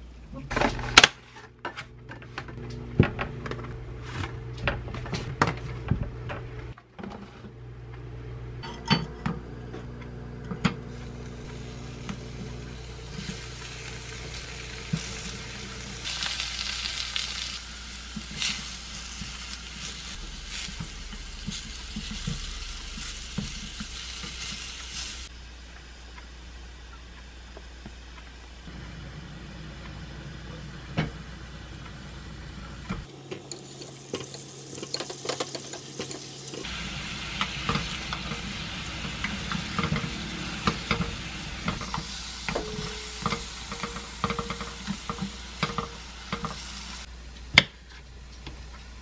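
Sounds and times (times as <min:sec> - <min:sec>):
food sizzling in oil: 0:10.9 - 0:25.3, 0:33.0 - 0:47.1.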